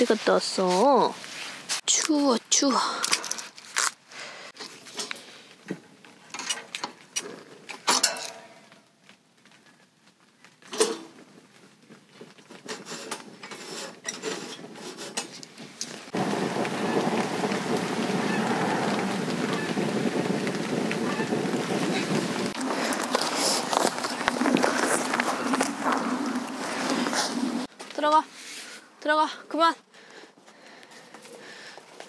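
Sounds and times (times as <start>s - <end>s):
steady rushing noise: 16.1s - 27.7s.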